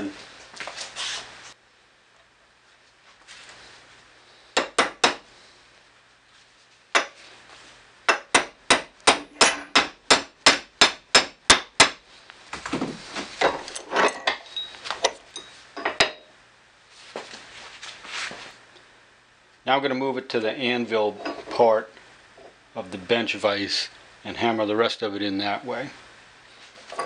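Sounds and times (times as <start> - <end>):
hammer striking steel pin: 8.1 - 12.0.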